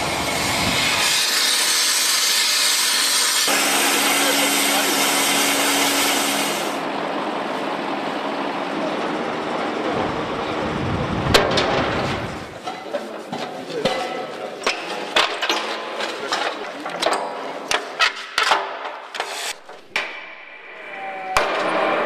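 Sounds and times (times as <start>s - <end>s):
metallic knocks and clanks: 11.3s - 20.6s.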